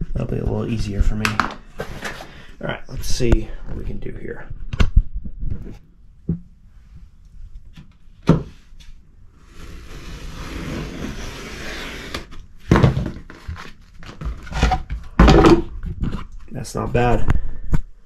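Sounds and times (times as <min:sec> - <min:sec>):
knife scraping through rubber mat: 0:09.4 - 0:12.4
board and knife thud: 0:12.7 - 0:13.2.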